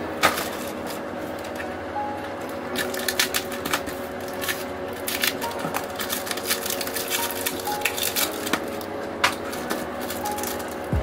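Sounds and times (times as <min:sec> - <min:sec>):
faint background music: 0:00.0 - 0:11.0
plastic bag crinkling: 0:02.7 - 0:11.0.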